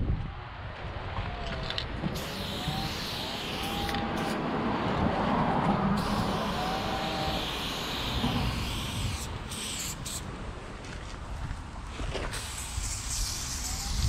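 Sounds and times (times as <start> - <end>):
spray paint can hissing: 2.2 - 4.4, 6.0 - 10.3, 12.3 - 14.0.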